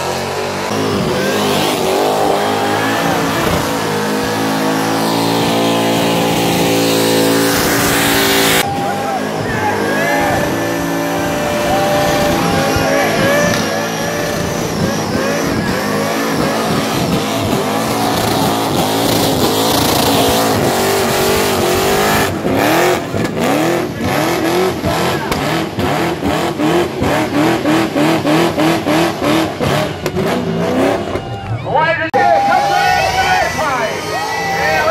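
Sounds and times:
monster truck engine revving: 0.0 - 34.9.

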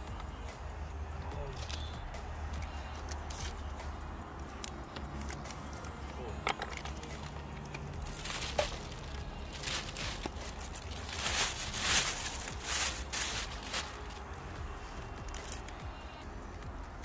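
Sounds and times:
plastic bag and paper crinkling: 5.0 - 15.9.

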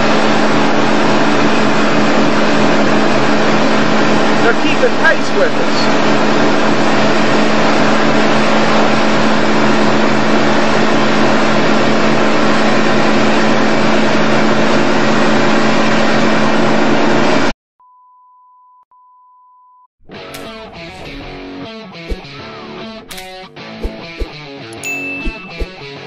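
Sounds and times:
motorboat engine drone: 0.0 - 17.5
high-pitched beep tone: 24.8 - 25.9.

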